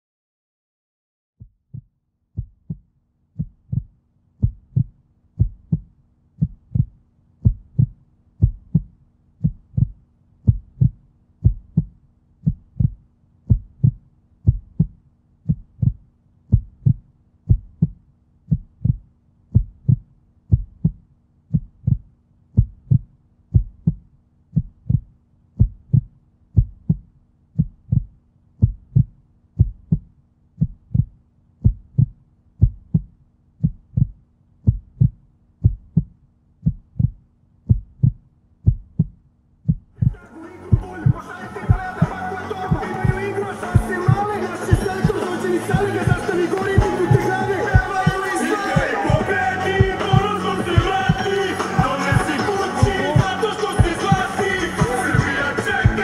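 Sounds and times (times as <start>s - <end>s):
heartbeat thumps: 1.4s - 56.0s
steady low hum: 2.4s - 41.9s.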